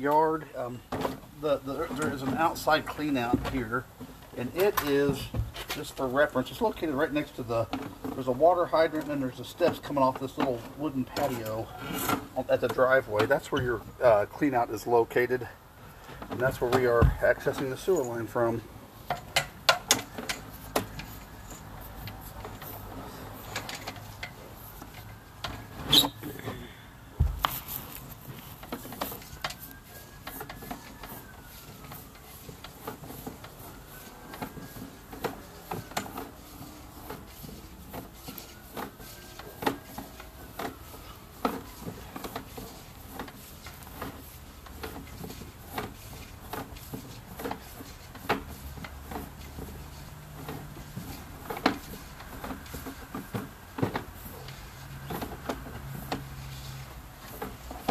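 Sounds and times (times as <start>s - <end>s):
cable handling clicks and knocks: 19.0s - 26.6s, 27.2s - 57.9s.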